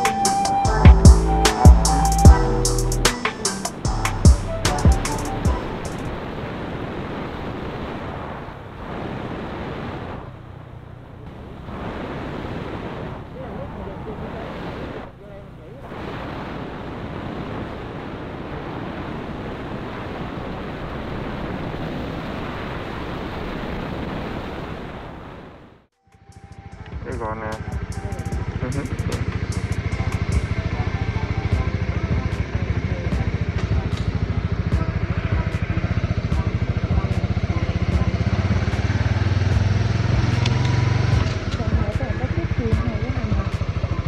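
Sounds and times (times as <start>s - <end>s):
road noise: 0.0s - 44.0s
deep steady hum: 0.6s - 3.1s, 3.8s - 6.2s
wind rush over microphone: 5.3s - 15.2s, 15.8s - 25.8s
motorcycle engine: 26.2s - 44.0s.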